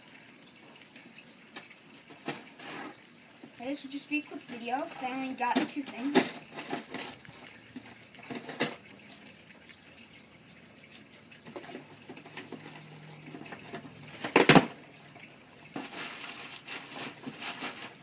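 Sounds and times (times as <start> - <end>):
plastic bag crinkling: 15.7 - 18.0.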